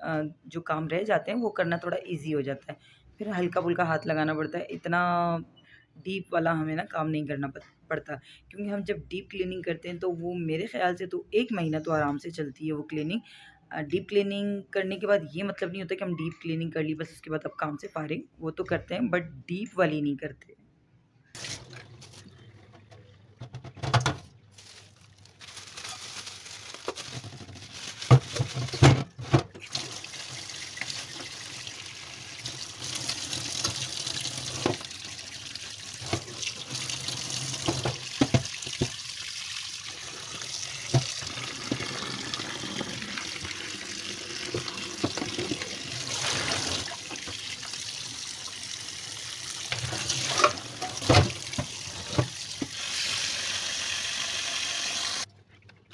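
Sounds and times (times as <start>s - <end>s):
metal clattering against sink: 21.4s - 24.3s
tap running into metal sink: 37.6s - 39.0s, 40.8s - 43.6s, 44.4s - 45.7s.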